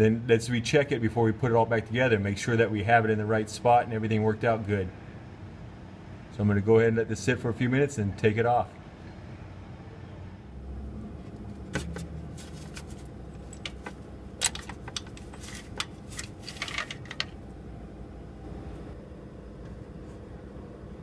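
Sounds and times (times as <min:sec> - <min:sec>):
steady low hum: 0:00.0 - 0:21.0
metal tool clicks and clinks: 0:13.3 - 0:15.9.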